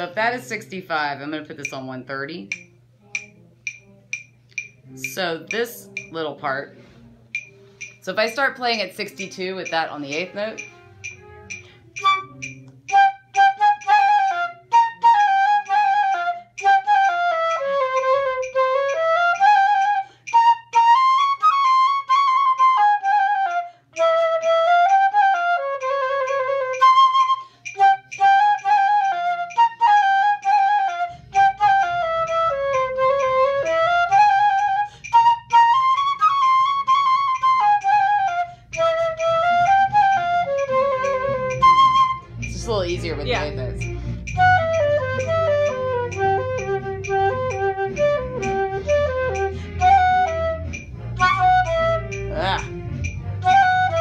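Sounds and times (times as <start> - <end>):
flute playing melody: 2.5 - 54.0.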